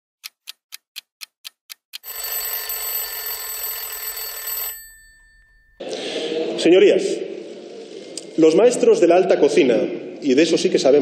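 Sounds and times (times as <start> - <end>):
alarm clock ticking: 0.2 - 5.8
alarm bell ringing: 2.0 - 6.1.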